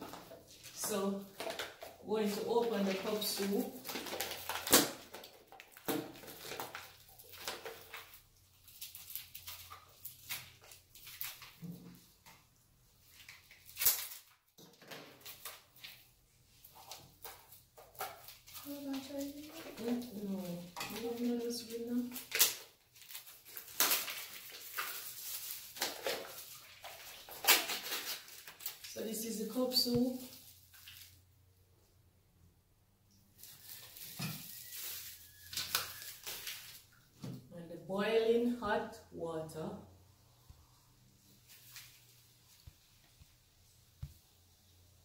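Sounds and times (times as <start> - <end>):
crinkling tearing scratches: 16.8 - 28.9, 33.4 - 36.9.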